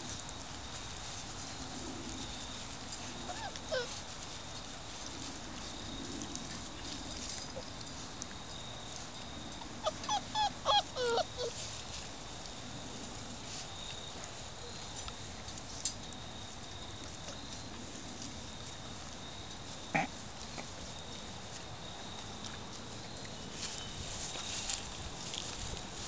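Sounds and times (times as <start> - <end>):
puppies whining and yelping: 2.9 - 4.3, 9.5 - 11.8.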